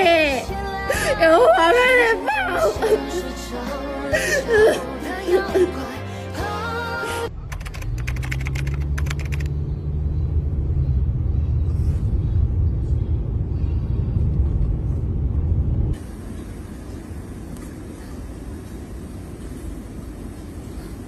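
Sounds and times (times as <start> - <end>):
car road and engine rumble: 0.0 - 21.0
sharp clicks: 7.5 - 9.6.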